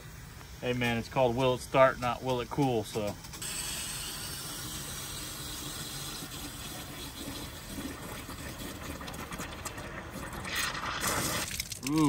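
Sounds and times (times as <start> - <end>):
water from hose running: 3.4 - 12.0.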